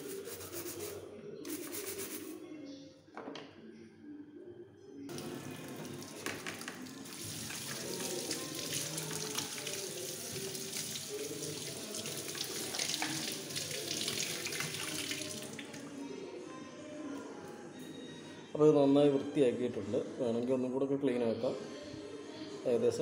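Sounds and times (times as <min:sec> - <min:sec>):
tap running into steel sink: 0:05.1 - 0:07.0.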